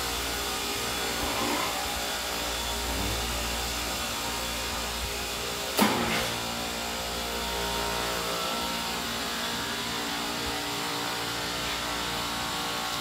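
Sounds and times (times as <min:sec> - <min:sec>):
compressors droning: 0:00.0 - 0:13.0.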